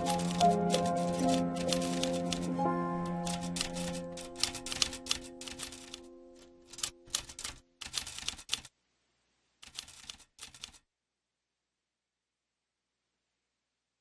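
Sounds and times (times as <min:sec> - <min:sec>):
held music notes: 0:00.0 - 0:07.1
typewriter keys clacking: 0:00.0 - 0:08.7, 0:09.6 - 0:10.8.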